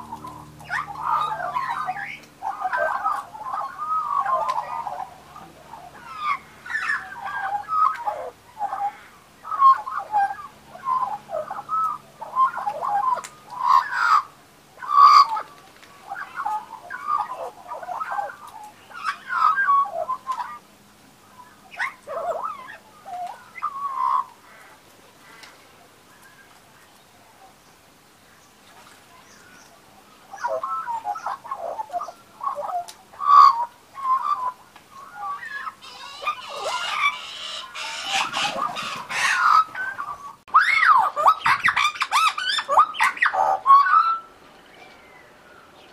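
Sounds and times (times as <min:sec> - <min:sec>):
magpies squawking: 0:00.0 - 0:20.7, 0:21.4 - 0:25.5, 0:30.3 - 0:44.4
magpies warbling: 0:00.0 - 0:25.5, 0:29.2 - 0:45.9.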